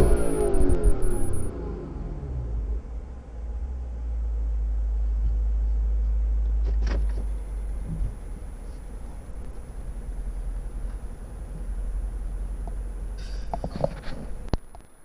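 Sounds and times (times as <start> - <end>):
car engine idling: 0.0 - 1.8, 7.0 - 15.0.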